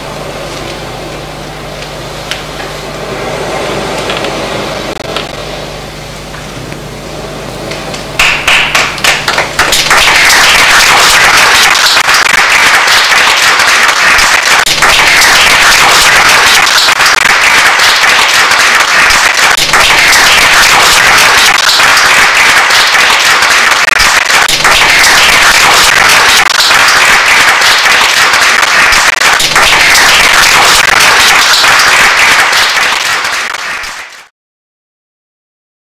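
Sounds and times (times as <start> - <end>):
audience applauding: 8.2 - 34.3.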